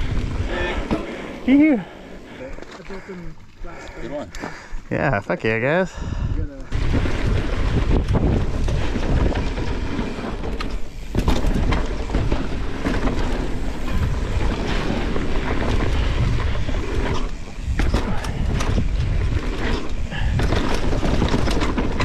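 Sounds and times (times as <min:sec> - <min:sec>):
wind rumbling on microphone: 0:00.0 - 0:02.4, 0:03.6 - 0:22.0
bike tyre noise on dirt: 0:00.0 - 0:22.0
bike clicks and knocks: 0:06.7 - 0:22.0.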